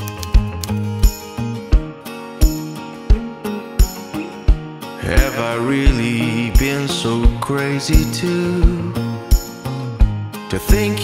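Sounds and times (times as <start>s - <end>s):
held chords: 0.0s - 11.0s.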